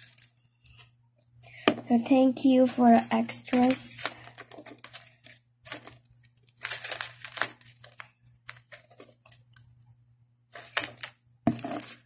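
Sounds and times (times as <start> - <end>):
plastic packet crinkling: 0.0 - 0.8, 1.9 - 9.8, 10.5 - 12.0
light crackles and clicks: 3.0 - 9.9.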